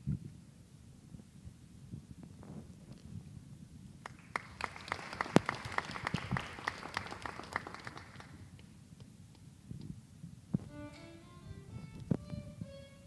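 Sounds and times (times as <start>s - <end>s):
audience applauding: 4.0s - 8.4s.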